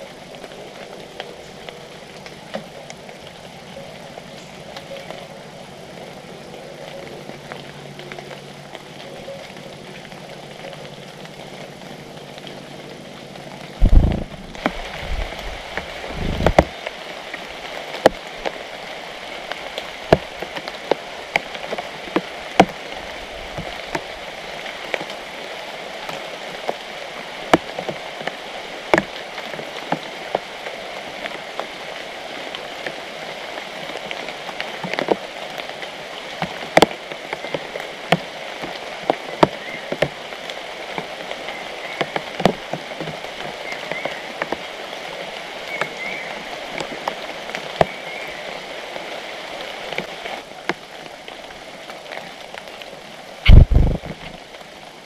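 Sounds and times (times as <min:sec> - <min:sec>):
rain on foliage: 0:00.0 - 0:55.0
loud low thump: 0:13.8 - 0:15.3, 0:53.5 - 0:54.2.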